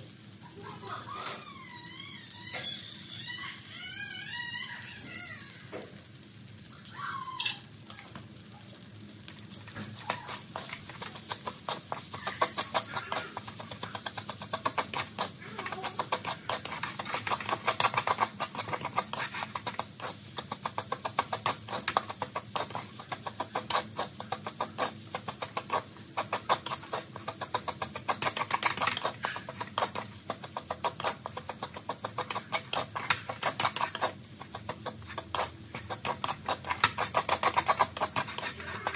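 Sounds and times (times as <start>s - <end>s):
spatula scraping a metal wok: 9.6s - 38.9s.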